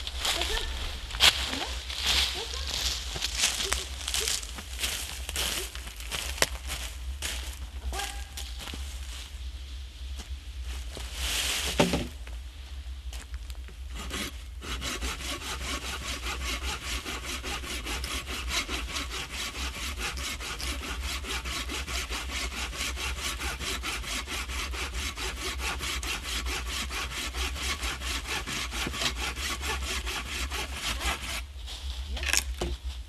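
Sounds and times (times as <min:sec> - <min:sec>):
hand saw cutting firewood: 0:00.3 - 0:00.7, 0:13.9 - 0:31.5.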